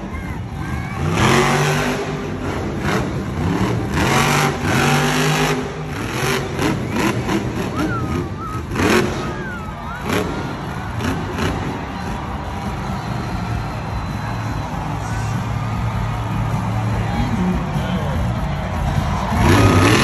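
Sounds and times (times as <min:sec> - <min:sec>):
truck engine revving hard: 0:00.4 - 0:15.0, 0:18.5 - 0:20.0.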